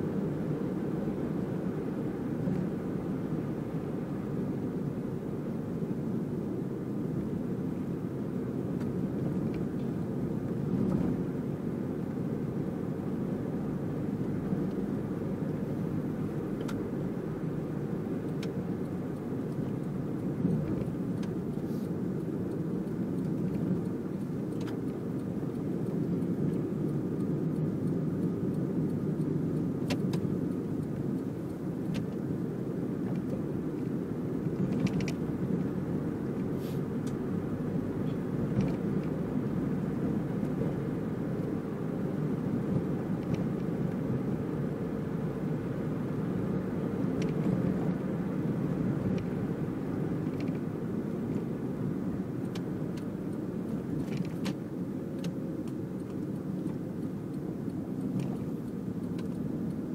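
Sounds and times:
car engine and road noise: 0:00.0 - 0:59.9
faint clicks: 0:51.8 - 0:59.9.

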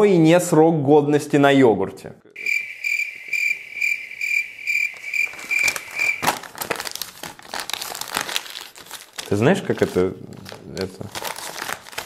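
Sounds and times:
crickets chirping: 0:02.4 - 0:06.3
paper leaflet rustling: 0:04.8 - 0:12.0.

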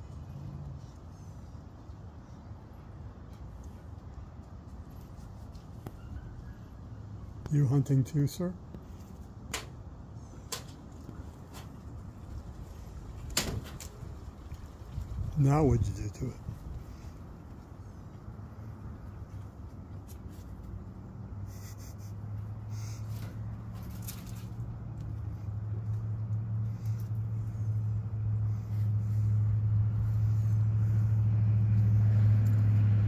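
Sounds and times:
faint clicks and rustles: 0:22.4 - 0:29.3.

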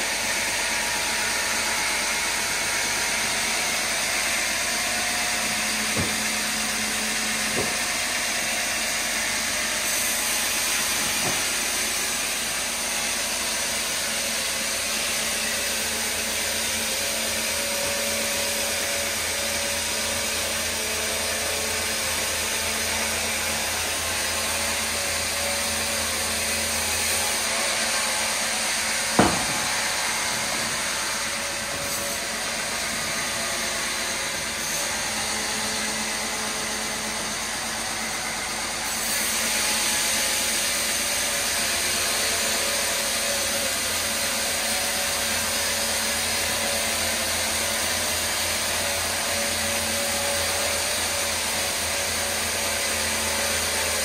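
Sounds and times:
sawmill machinery whirring: 0:00.0 - 0:54.0
sharp thump: 0:05.9 - 0:06.4, 0:07.5 - 0:07.9, 0:29.2 - 0:29.8.

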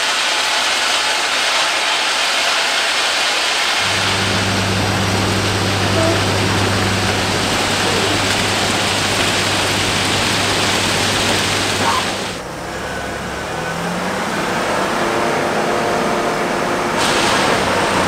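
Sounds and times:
loud rushing machine noise: 0:00.0 - 0:18.0
steady low hum: 0:03.8 - 0:12.4.

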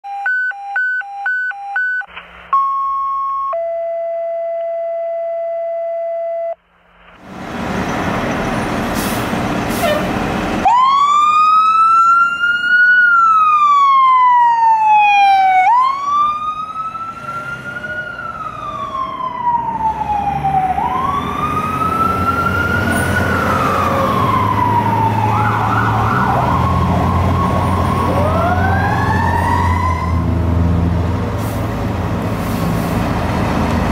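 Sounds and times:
electronic beeps and tones: 0:00.1 - 0:06.6
fire engine siren wailing: 0:09.7 - 0:31.2
horn blasts: 0:09.8 - 0:10.1.

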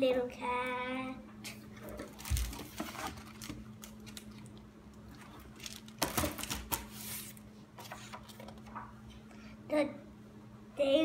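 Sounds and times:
book pages rustling: 0:01.8 - 0:04.4, 0:05.1 - 0:08.9.

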